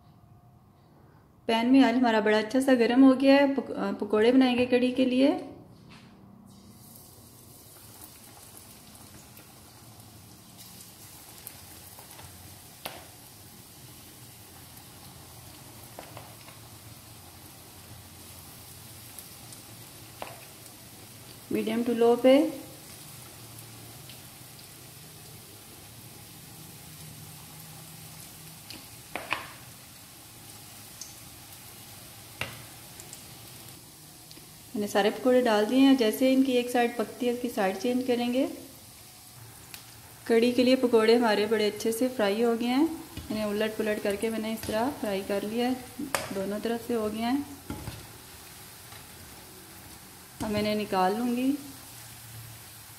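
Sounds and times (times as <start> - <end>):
batter sizzling in hot oil: 6.5 - 52.9.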